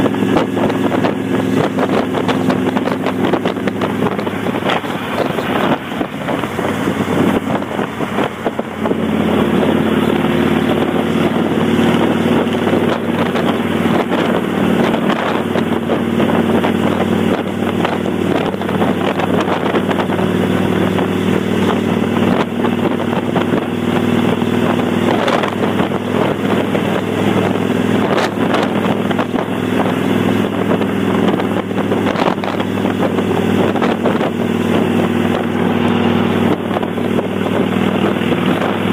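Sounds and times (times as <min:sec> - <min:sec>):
motorcycle engine droning: 0:00.0 - 0:38.9
wind rushing over microphone: 0:00.0 - 0:38.9.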